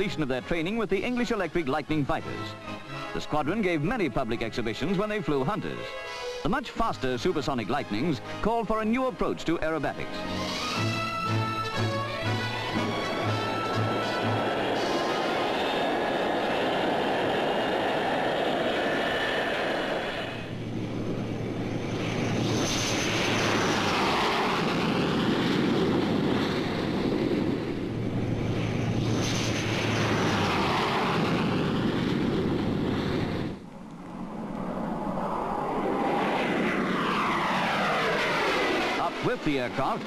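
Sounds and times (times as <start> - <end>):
jet fighters taking off: 0.0 - 40.0
faint falling high whine: 12.5 - 39.2.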